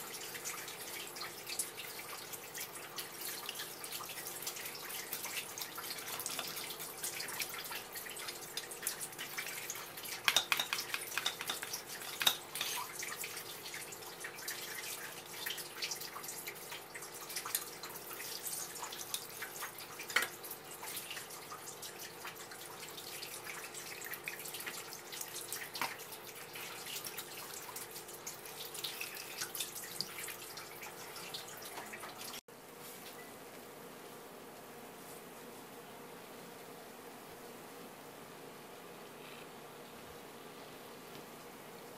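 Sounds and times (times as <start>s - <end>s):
tap water splashing on board: 9.3s - 12.8s, 25.6s - 26.1s.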